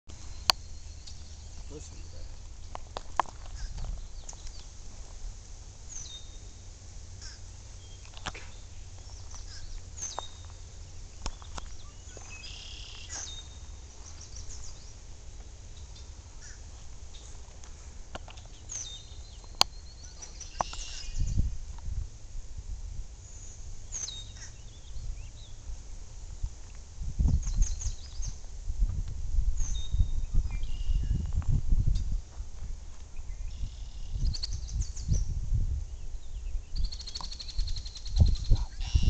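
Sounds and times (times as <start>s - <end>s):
small birds chirping: 0.1s - 5.2s, 5.8s - 21.8s, 23.2s - 25.7s, 26.7s - 28.5s, 29.6s - 39.0s
crow calling: 16.4s - 16.7s.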